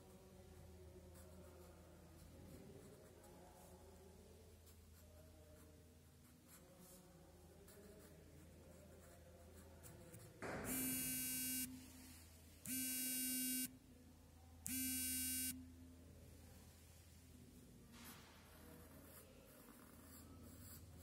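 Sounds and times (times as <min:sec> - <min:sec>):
harsh electronic buzzer: 0:10.5 - 0:11.8, 0:12.6 - 0:13.7, 0:14.7 - 0:15.6
pen scratching on paper: 0:18.0 - 0:21.0.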